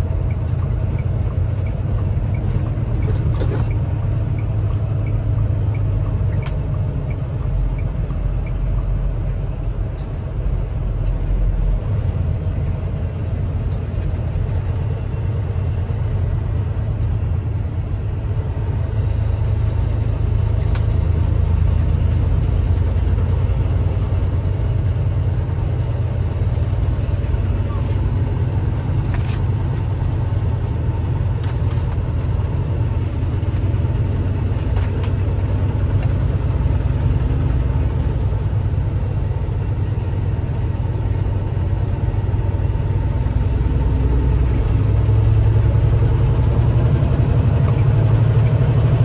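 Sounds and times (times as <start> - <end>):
turn signal ticking: 0.0 - 9.1
diesel engine drone: 0.0 - 49.0
road rumble: 0.0 - 49.0.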